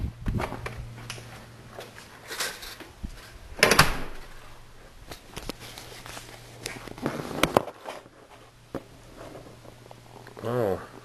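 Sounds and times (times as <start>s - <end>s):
low steady hum: 0.0s - 11.0s
garage door opening and shutting: 2.2s - 4.6s.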